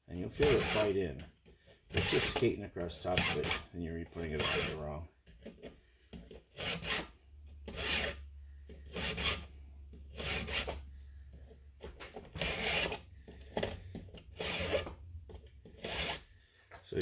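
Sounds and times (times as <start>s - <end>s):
file rasping on saw chain: 0.3s - 1.0s, 1.9s - 2.4s, 3.0s - 3.7s, 4.3s - 4.8s, 6.5s - 7.1s, 7.7s - 8.2s, 8.9s - 9.5s, 10.1s - 10.8s, 12.4s - 13.0s, 14.3s - 15.0s, 15.7s - 16.3s.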